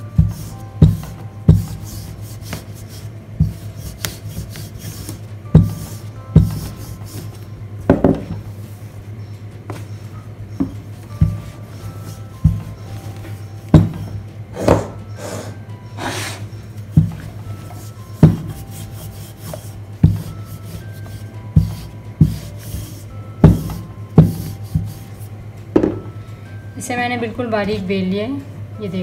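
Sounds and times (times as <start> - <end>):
rolling pin rubbing pastry: 0.0 - 7.6, 11.0 - 14.2, 16.5 - 25.4
faint background music: 0.0 - 29.0
rolling pin thudding on table: 7.9 - 8.4, 23.4 - 24.5.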